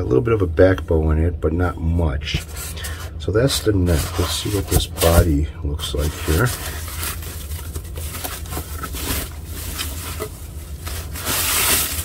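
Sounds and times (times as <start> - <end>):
low hum: 0.0 - 12.0
plastic wrap rustling: 2.4 - 12.0.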